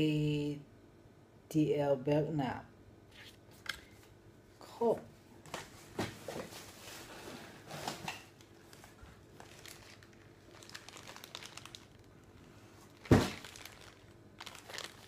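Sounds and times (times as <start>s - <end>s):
packaging crinkling and rustling: 6.1s - 15.0s.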